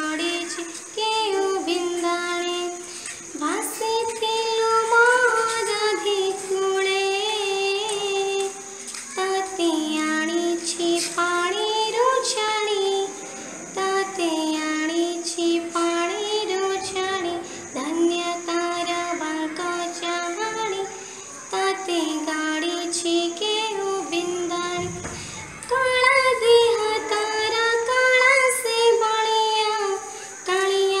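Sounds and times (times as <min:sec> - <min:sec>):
girl singing devotional song: 0:00.0 - 0:31.0
high-pitched hiss: 0:00.0 - 0:31.0.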